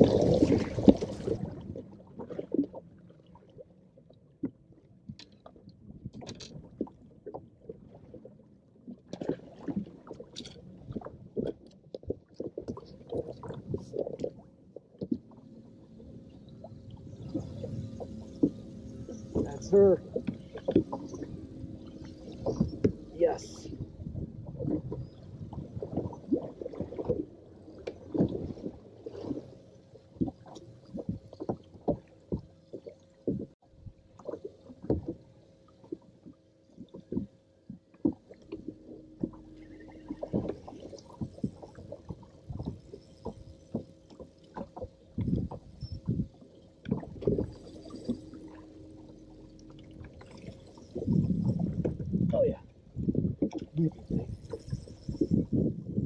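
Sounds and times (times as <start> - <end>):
waves slapping against hull: 0.0 - 56.0
faint steady hum: 12.7 - 56.0.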